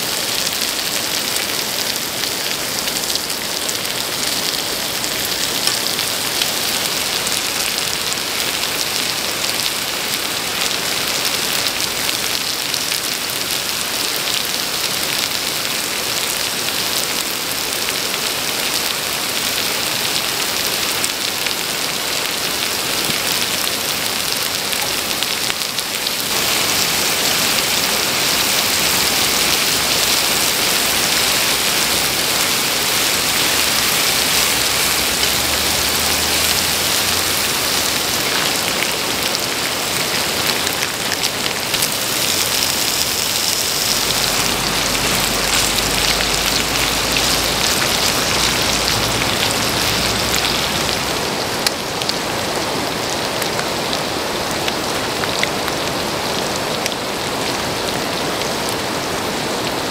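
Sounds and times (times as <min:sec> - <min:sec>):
meat sizzling on a griddle: 0:17.6 - 0:51.0.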